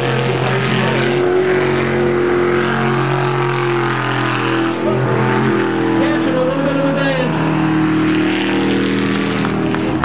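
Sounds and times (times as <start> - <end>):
boat engine running hard: 0.0 - 10.0.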